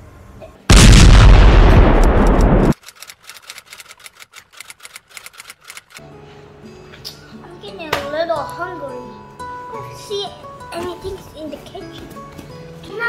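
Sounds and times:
loud explosion: 0.7 - 2.8
faint sharp rapid clicks: 2.2 - 6.0.

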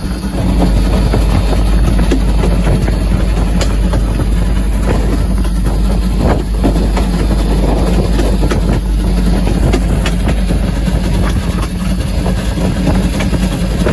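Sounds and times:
locomotive knocks and clanks: 0.0 - 13.9
steam locomotive rumbling: 0.0 - 13.9.

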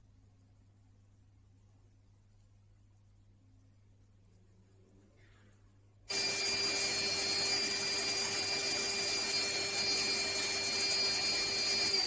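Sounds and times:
machine motor whining: 6.1 - 12.0.

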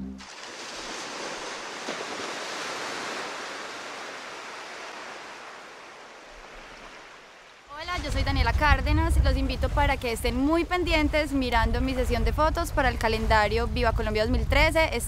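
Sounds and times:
ocean surf washing: 0.2 - 12.1.

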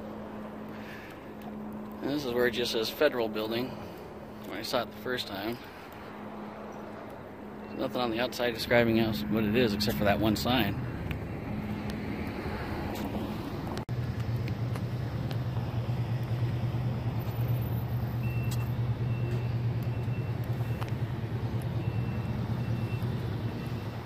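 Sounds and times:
vehicle engine humming: 0.0 - 24.0
faint high beeps: 7.6 - 8.3, 18.2 - 20.9, 21.8 - 24.0.

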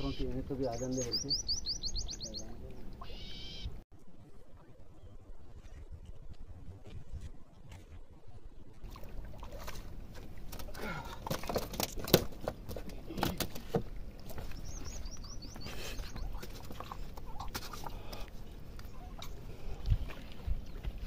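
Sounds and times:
bird chirping rising notes: 0.0 - 3.8, 14.6 - 16.4
wind rumble on microphone: 4.0 - 8.9, 18.6 - 21.0.

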